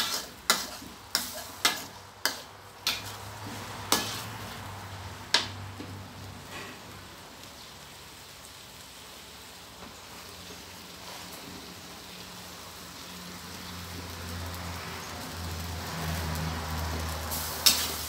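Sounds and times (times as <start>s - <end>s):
metal spatula striking a wok: 0.0s - 3.2s, 3.9s - 4.3s, 5.3s - 5.6s
noodles sizzling in a pan: 0.0s - 18.0s.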